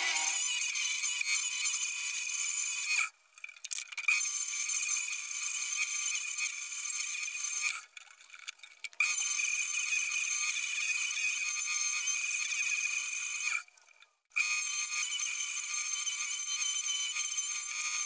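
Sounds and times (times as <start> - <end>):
chisel scraping wood: 0.0 - 0.4
wood lathe whine: 0.0 - 0.4.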